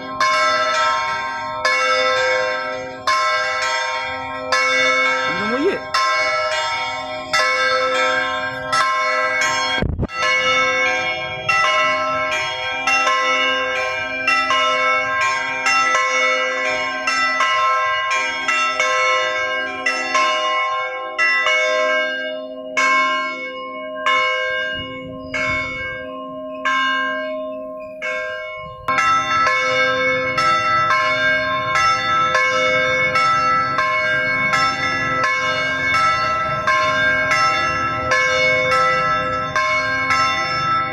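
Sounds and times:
church bells ringing: 0:00.0 - 0:40.9.

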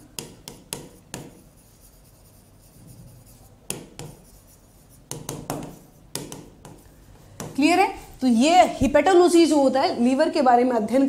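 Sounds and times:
pen tip tapping on a board: 0:00.2 - 0:01.4, 0:03.7 - 0:04.2, 0:05.1 - 0:07.6
pen scratching on a board: 0:00.2 - 0:08.3.

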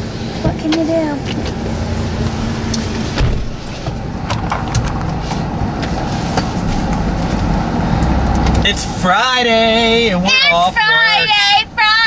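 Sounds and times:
car engine and road rumble: 0:00.0 - 0:12.0.

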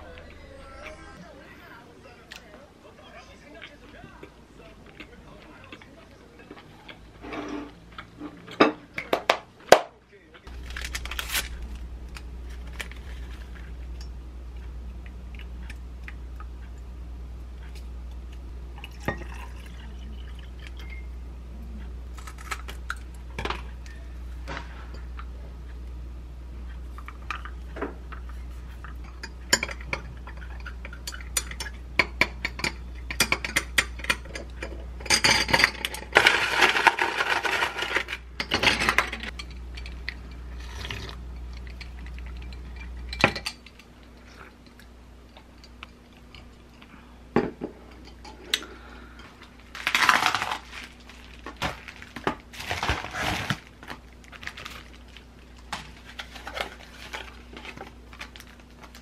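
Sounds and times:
paper packaging rustling: 0:10.5 - 0:13.7, 0:49.6 - 0:59.0.

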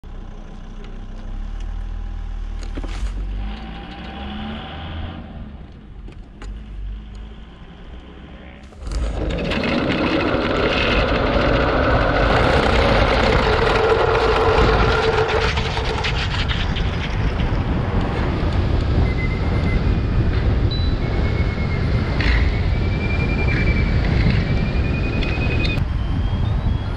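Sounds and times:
low rumble: 0:01.1 - 0:26.9
steady whine: 0:07.5 - 0:26.9
wind on microphone: 0:08.6 - 0:26.9
camera rig rattling along concrete: 0:08.7 - 0:17.7.

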